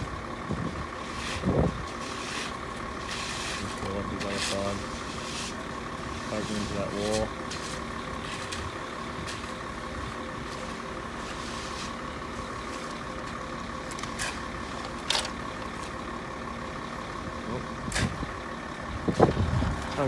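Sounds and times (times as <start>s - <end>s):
truck engine running: 0.0s - 20.0s
concrete tools scraping: 1.0s - 9.6s, 10.4s - 13.0s, 13.9s - 15.4s.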